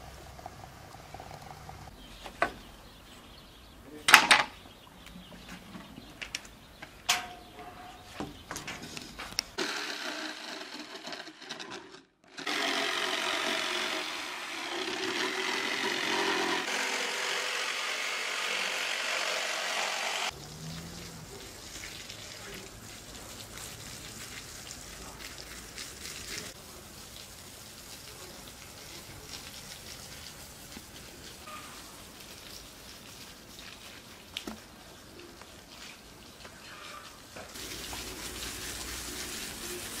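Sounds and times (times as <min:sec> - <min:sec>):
sharp knocks and clinks: 0:07.0 - 0:08.8
electric jigsaw cutting wood: 0:09.6 - 0:20.3.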